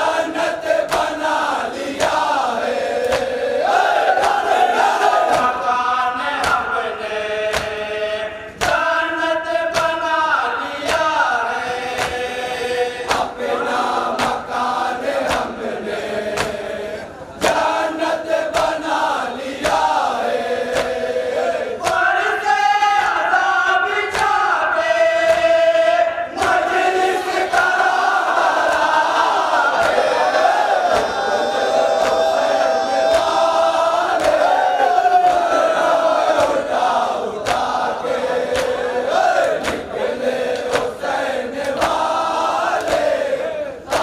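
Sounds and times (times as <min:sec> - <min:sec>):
men chanting in unison: 0:00.0 - 0:44.0
chest-beating slaps: 0:00.8 - 0:01.3, 0:03.0 - 0:03.4, 0:05.3 - 0:05.6, 0:06.4 - 0:06.7, 0:07.4 - 0:07.8, 0:09.7 - 0:10.0, 0:11.9 - 0:12.2, 0:13.0 - 0:13.4, 0:14.1 - 0:14.6, 0:15.2 - 0:15.6, 0:16.3 - 0:16.7, 0:17.4 - 0:17.7, 0:18.5 - 0:18.9, 0:20.7 - 0:21.1, 0:24.1 - 0:24.4, 0:30.8 - 0:31.2, 0:33.0 - 0:34.5, 0:36.3 - 0:37.8, 0:38.5 - 0:42.2, 0:42.8 - 0:43.2.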